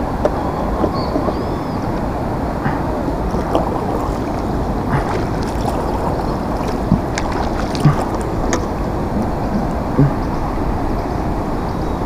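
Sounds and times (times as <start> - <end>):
wind on microphone: 2.6 - 11.2.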